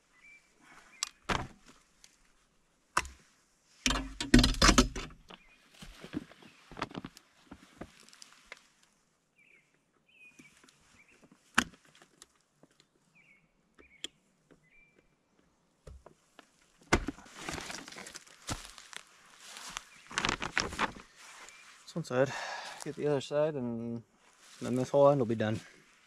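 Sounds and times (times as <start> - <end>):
rustling and clattering: 3.8 - 8.6, 15.9 - 18.7, 19.5 - 21.5.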